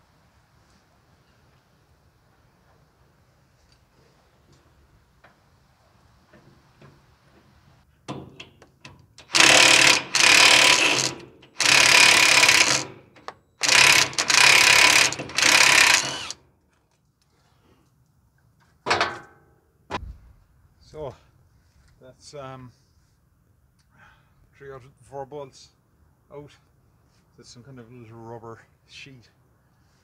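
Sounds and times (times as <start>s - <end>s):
impact wrench bursts: 9.2s - 16.4s.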